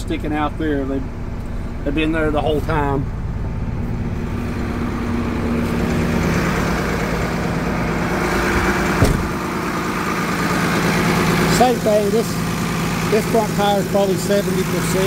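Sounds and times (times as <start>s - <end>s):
diesel truck engine idling: 0.0s - 15.0s
sharp knock: 9.0s - 9.4s.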